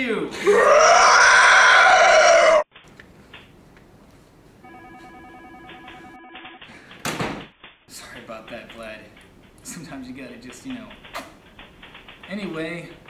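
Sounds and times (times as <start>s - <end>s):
shrill screeching cry: 0.6s - 2.7s
telephone ringing faintly: 4.6s - 6.6s.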